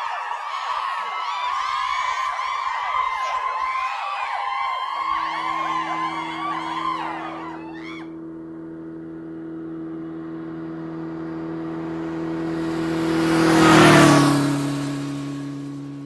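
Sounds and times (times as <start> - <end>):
car passing by: 4.9 - 16.0.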